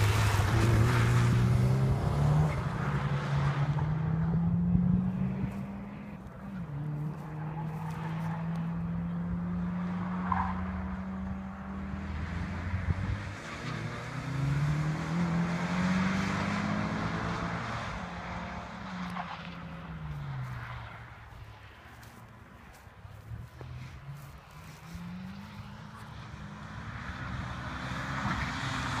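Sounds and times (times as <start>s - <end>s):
car engine revving: 0.0s - 21.3s.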